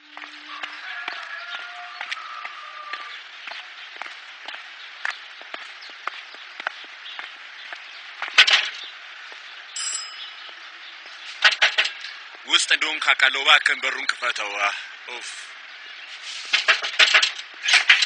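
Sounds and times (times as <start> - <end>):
steady hiss: 10.6 - 17.8
sharp knocks and clicks: 11.4 - 12.1, 16.5 - 18.0.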